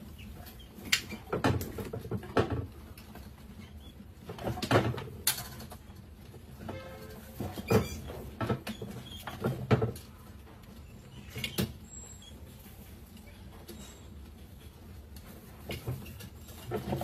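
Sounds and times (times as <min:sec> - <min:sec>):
rats scrabbling and pattering: 0:00.0 - 0:06.6, 0:07.3 - 0:17.0.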